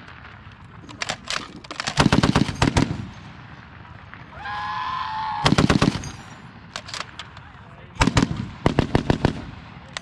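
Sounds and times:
heavy machine gun firing bursts: 1.0s - 3.2s, 5.4s - 6.2s, 8.0s - 9.6s.

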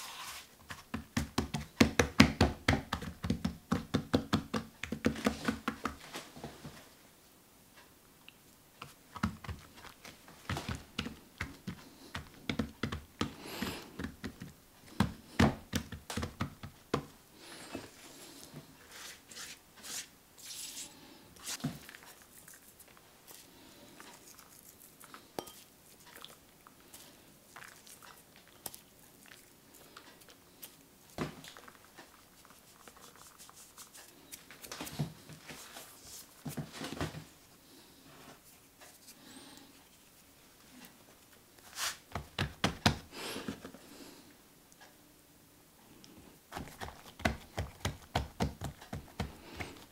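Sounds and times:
flour sprinkled: 0.0s - 0.9s, 31.4s - 36.8s
hands patting dough: 0.0s - 6.2s, 8.8s - 17.9s, 41.8s - 43.8s, 46.5s - 49.9s.

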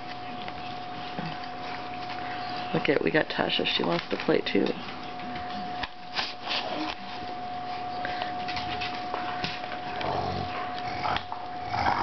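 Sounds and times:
dog growling low: 9.8s - 12.0s.

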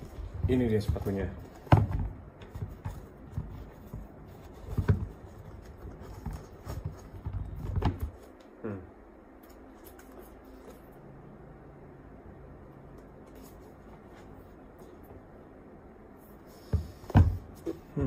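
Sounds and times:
shoe handling knocks and rustles: 0.0s - 8.4s, 16.6s - 17.9s
faint low hum: 0.0s - 18.0s.

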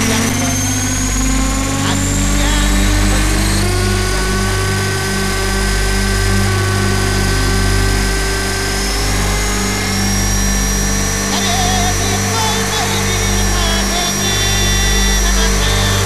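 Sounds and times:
low rotor drone: 0.0s - 16.0s
rc helicopter motor whine: 0.0s - 16.0s.

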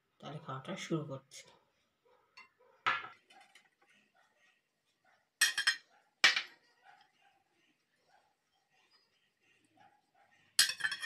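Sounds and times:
dishes knocking and clinking: 2.4s - 3.6s, 5.4s - 6.6s, 10.6s - 11.0s.

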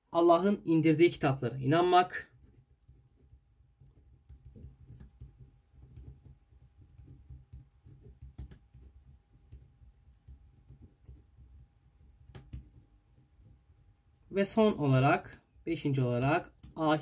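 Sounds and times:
marker pen scratching on paper: 1.8s - 14.0s
hand rubbing and knocking on desk: 2.2s - 14.1s.

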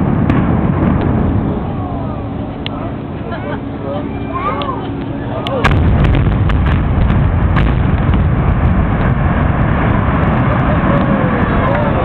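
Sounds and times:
building implosion rumble: 0.0s - 3.9s, 4.9s - 12.0s
demolition charges cracking: 5.5s - 12.0s.

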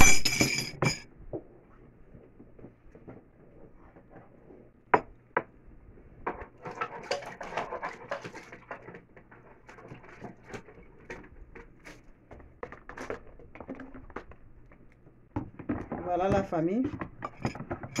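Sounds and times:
kitchen utensils clattering: 0.0s - 1.0s, 6.4s - 9.0s.

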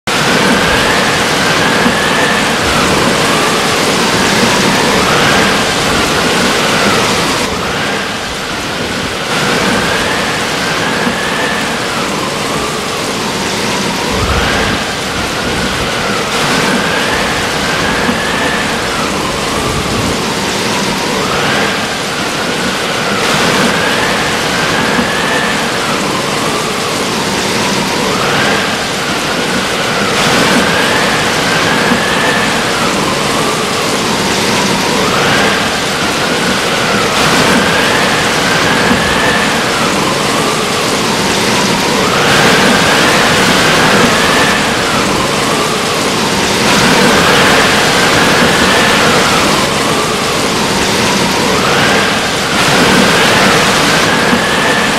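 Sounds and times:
heavy rain and wind: 0.0s - 54.9s
whistling wind tone: 0.0s - 54.9s.

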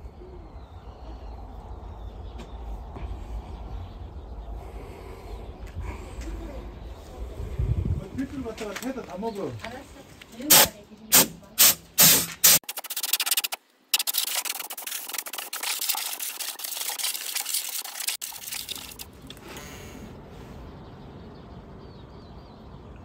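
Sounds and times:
low rumble: 0.0s - 8.4s
compressed air blasts hissing: 10.5s - 18.2s.

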